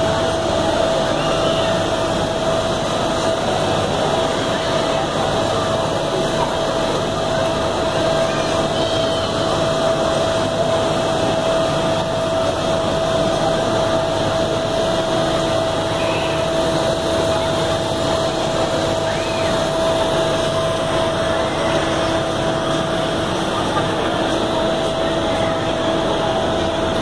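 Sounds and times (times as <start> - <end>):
constant hum: 0.0 - 27.0
ride machinery whirring: 0.0 - 27.0.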